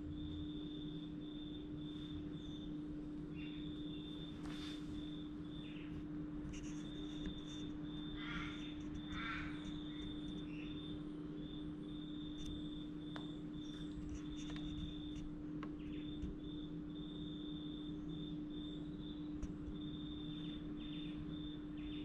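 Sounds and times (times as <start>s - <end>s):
steady hum: 0.0s - 22.0s
bird calling: 3.3s - 10.8s.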